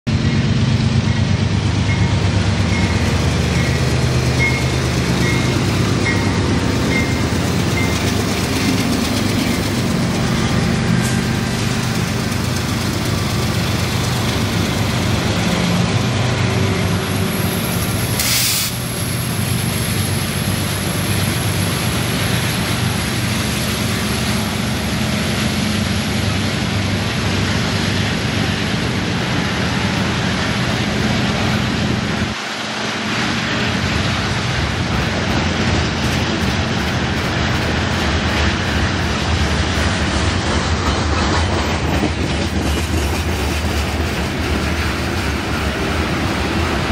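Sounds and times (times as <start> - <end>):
diesel locomotive engines droning: 0.1 - 46.9
steel wheels clattering on rail: 0.1 - 46.9.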